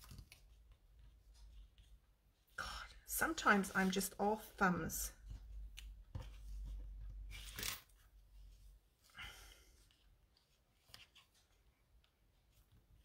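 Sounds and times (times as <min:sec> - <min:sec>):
paper and twine rustling: 0:00.0 - 0:02.1.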